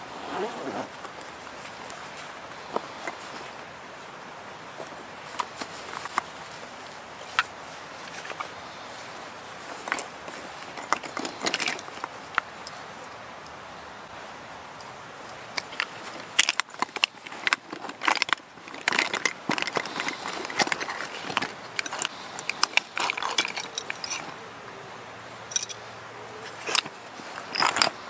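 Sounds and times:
rustling in pouch: 0.1 - 3.6, 4.7 - 13.0, 15.4 - 24.5, 25.5 - 28.0
jars and bottles clinking: 15.8 - 24.3, 26.6 - 28.0.

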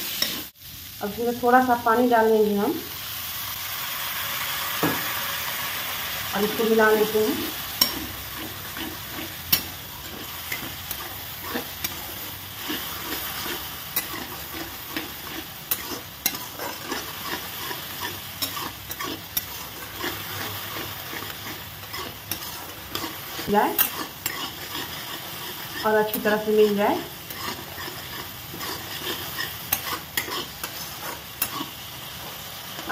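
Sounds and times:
spatula scraping a pan: 0.0 - 0.6, 6.4 - 32.9
oil sizzling: 0.0 - 32.9.

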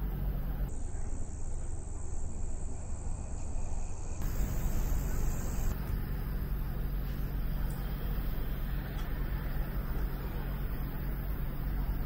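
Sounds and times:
distant road traffic rumble: 0.0 - 12.0
insects chirping: 0.1 - 12.0.

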